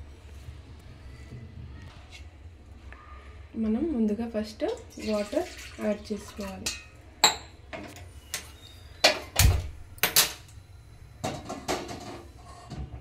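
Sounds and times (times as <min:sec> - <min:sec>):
metal pot knocks and clinks: 0:06.6 - 0:08.0.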